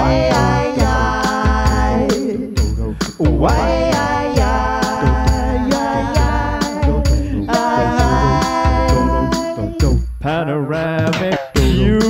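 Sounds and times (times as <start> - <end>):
looped electronic drum beat: 0.0 - 10.2, 11.0 - 12.0
swooping processed synth line: 3.4 - 10.0.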